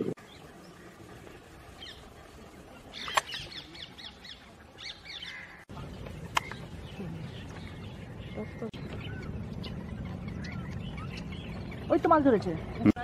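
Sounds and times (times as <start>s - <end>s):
birds chirping: 0.0s - 13.0s
sharp click: 6.3s - 6.6s.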